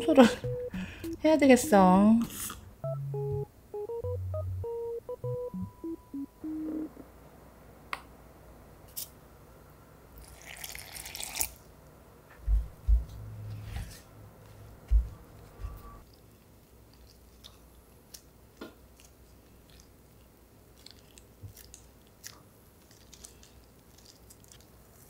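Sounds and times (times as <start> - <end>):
water poured into bowl: 10.2 - 11.5.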